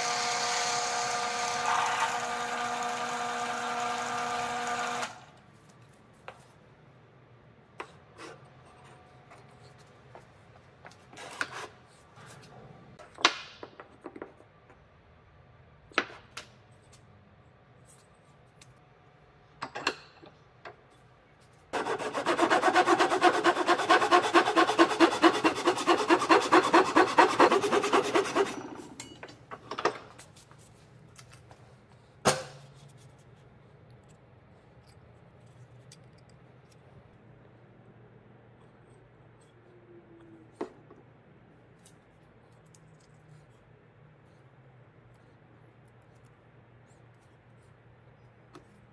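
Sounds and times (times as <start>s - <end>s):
handsaw sawing wood: 21.7s - 28.7s.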